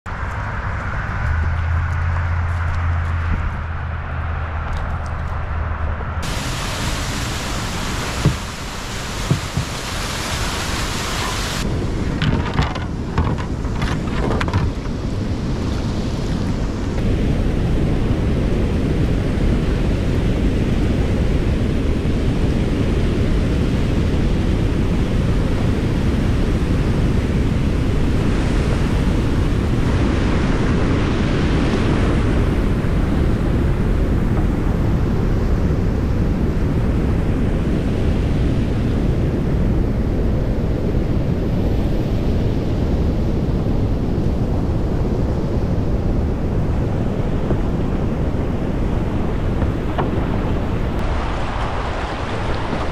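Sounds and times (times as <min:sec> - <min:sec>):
wind buffeting microphone: 0:00.1 - 0:52.9
water pouring over a dam spillway: 0:06.2 - 0:11.6
rushing whitewater: 0:06.2 - 0:17.0, 0:46.4 - 0:52.9.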